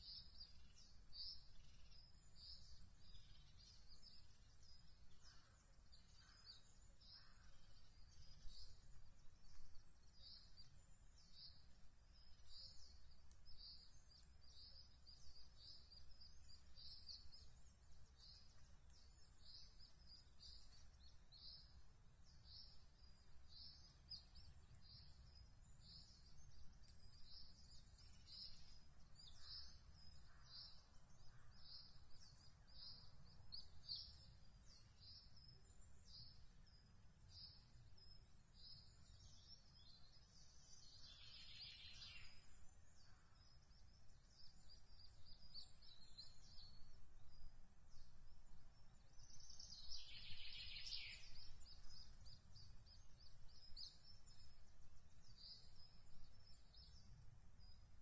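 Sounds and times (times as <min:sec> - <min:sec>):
louder longer bird calls: 0:49.0 - 0:54.7.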